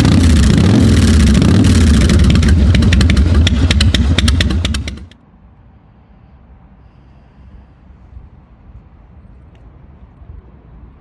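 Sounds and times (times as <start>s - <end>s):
motorcycle engine running: 0.0s - 5.2s
sharp engine crackles: 0.0s - 5.2s.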